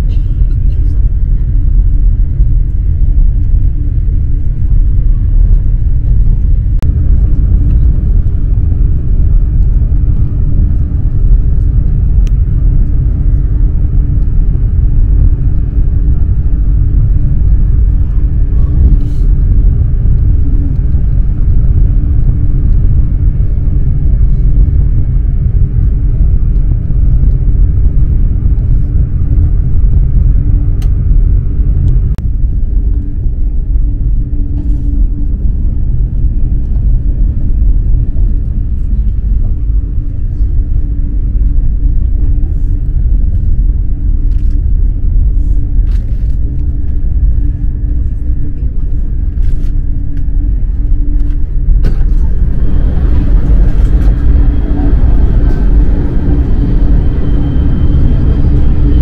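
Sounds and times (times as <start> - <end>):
faint even hum: 0.0 - 59.0
train rumble on board: 0.0 - 59.0.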